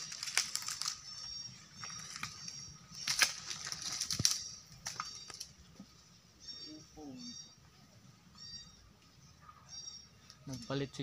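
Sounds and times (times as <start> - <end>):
footsteps crunching dry leaves: 0.0 - 5.5
faint high chirping: 0.0 - 11.0.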